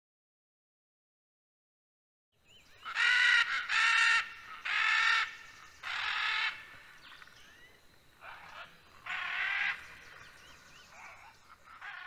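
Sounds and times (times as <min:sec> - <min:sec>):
macaws squawking: 0:02.8 - 0:06.8, 0:08.2 - 0:10.3, 0:10.9 - 0:12.0.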